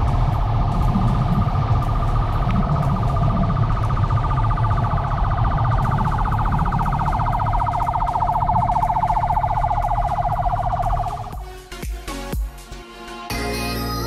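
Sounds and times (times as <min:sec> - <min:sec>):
warbling electronic siren: 0:00.0 - 0:11.4
wind noise: 0:00.0 - 0:11.4.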